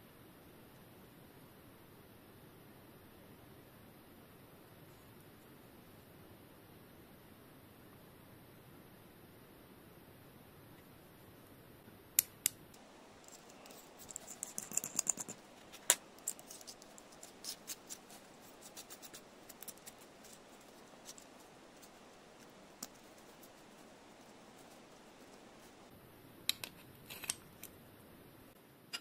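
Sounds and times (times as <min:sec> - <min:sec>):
metal parts and tools clicking: 0:13.2 - 0:17.9.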